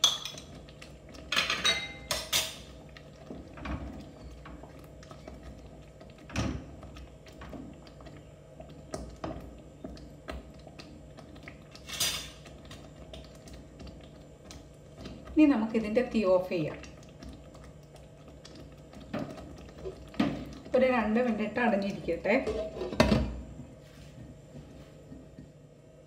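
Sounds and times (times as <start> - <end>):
wooden spoon stirring in pan: 16.9 - 20.9.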